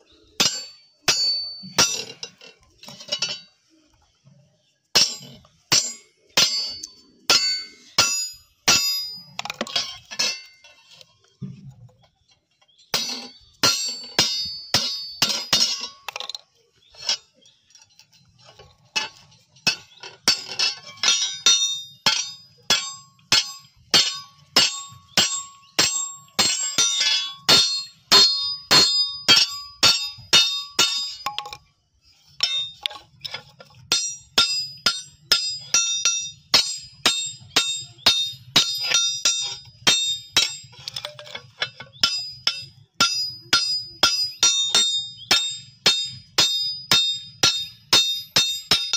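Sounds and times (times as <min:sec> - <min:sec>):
hammer ringing on metal anvil: 0:19.7 - 0:31.6, 0:41.9 - 0:48.9.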